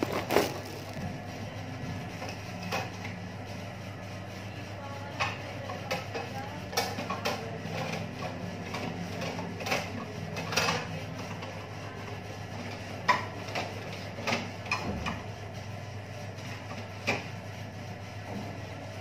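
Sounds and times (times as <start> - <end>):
rustling: 0.0 - 1.1
steady low hum: 0.0 - 13.9.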